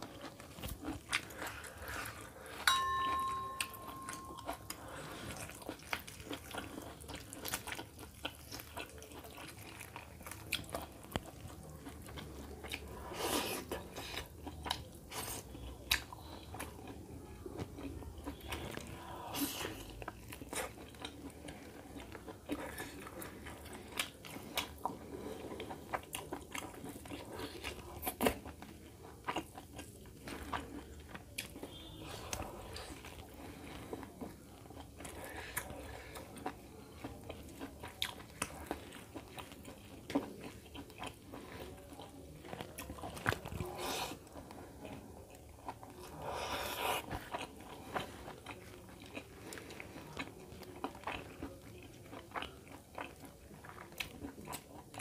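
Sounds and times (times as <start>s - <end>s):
chewing and biting food: 0.0s - 55.0s
steady high tone: 2.6s - 4.8s.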